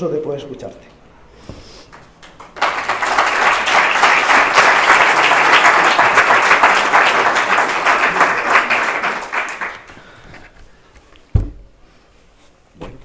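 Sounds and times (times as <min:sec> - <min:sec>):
audience applauding: 0:01.9 - 0:10.2.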